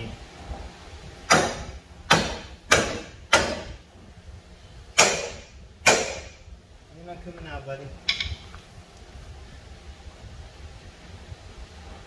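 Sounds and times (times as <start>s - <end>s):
hammer striking steel: 1.3s - 3.8s, 5.0s - 6.4s.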